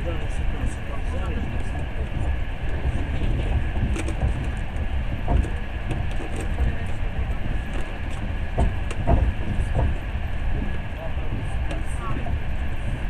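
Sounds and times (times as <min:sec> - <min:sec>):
train wheels rumbling: 0:00.0 - 0:13.0
short knocks: 0:02.8 - 0:12.4.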